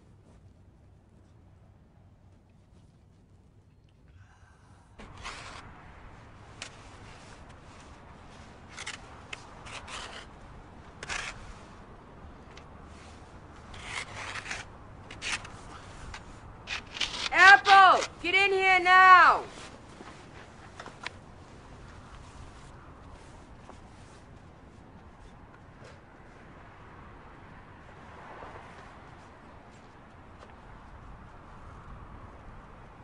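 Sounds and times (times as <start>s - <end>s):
stick scraping packed snow: 5.0s - 5.7s, 6.5s - 10.4s, 11.0s - 11.8s, 12.9s - 18.2s.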